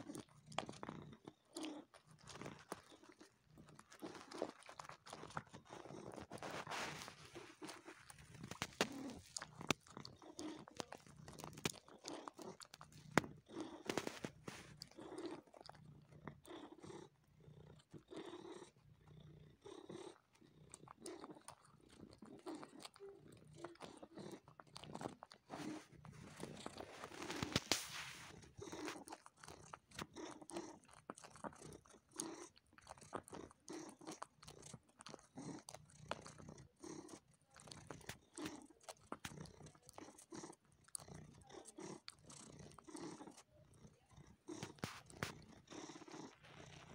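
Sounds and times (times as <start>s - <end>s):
cat purring: 0.0s - 46.9s
cat sucking and smacking: 0.0s - 46.9s.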